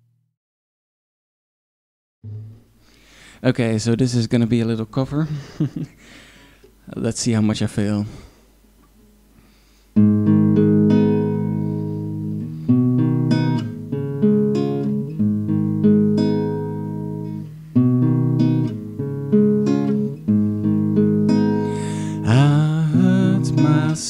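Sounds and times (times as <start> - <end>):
classical guitar picked chords: 2.2 - 2.7, 10.0 - 24.0.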